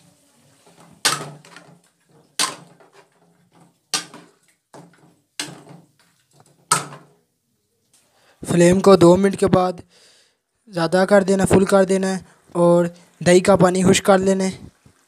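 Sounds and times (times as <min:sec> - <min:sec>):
ladle scraping steel pan: 0:00.6 - 0:05.9.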